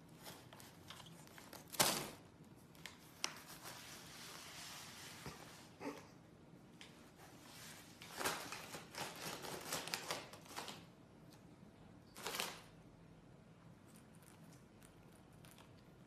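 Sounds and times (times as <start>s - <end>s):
cat rustling plastic liner: 0.0s - 5.8s, 7.0s - 10.9s, 12.2s - 12.8s.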